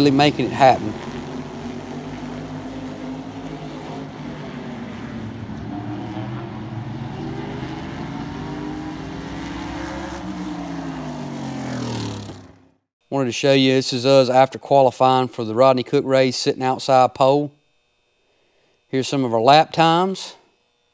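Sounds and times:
race car engines running hard: 0.0 - 12.8.

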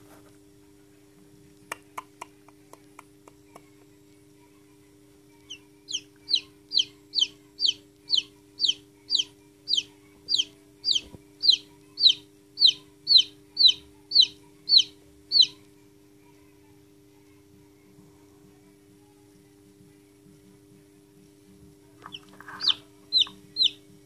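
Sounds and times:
chick peeping: 5.5 - 15.7, 22.0 - 23.9.

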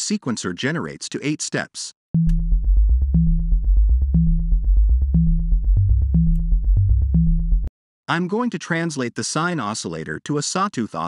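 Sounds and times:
short low synthesizer notes: 2.2 - 7.7.

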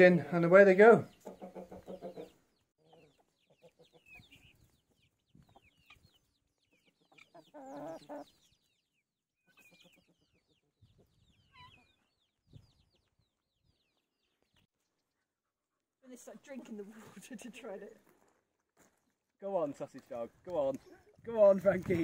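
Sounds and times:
chickens clucking: 0.0 - 15.2
drawn-out cluck: 1.1 - 8.4, 9.5 - 12.0.

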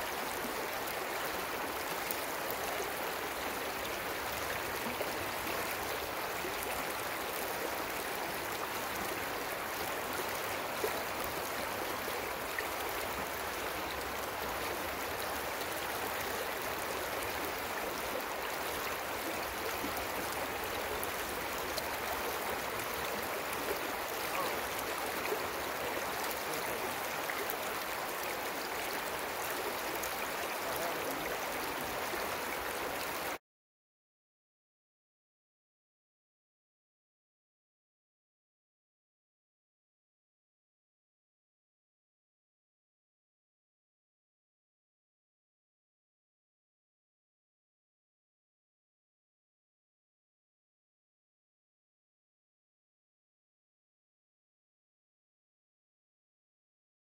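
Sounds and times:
creek water flowing: 0.0 - 33.4.

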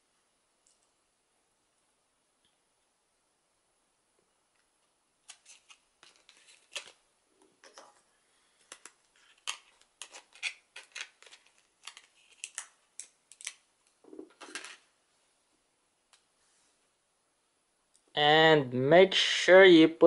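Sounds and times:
plastic packaging crinkling: 5.2 - 7.0, 8.7 - 13.6.

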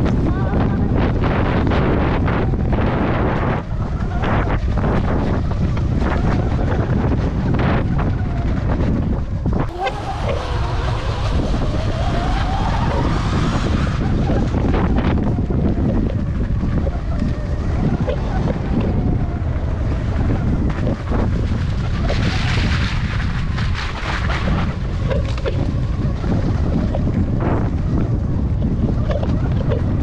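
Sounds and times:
electric dirt bike riding: 0.0 - 30.0
wind buffeting microphone: 0.0 - 30.0.

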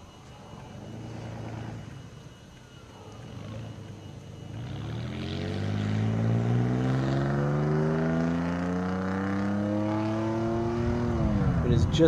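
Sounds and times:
vehicle engine accelerating: 3.4 - 12.0.

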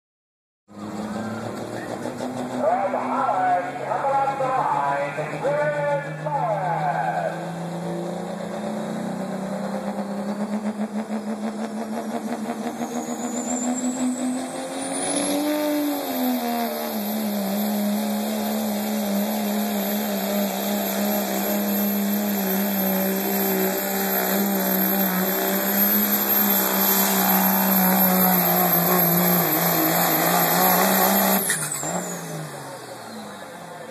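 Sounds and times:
diesel pickup engine at high revs: 0.7 - 33.9
high turbo whistle: 12.5 - 33.4.

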